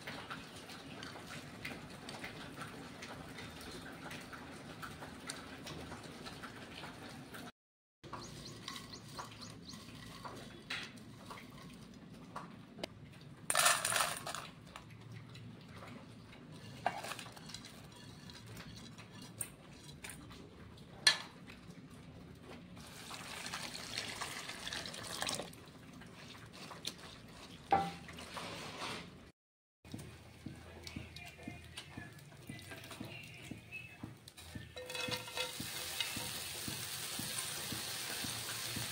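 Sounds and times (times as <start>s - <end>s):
prawns knocking against metal bowl: 34.4s - 38.5s.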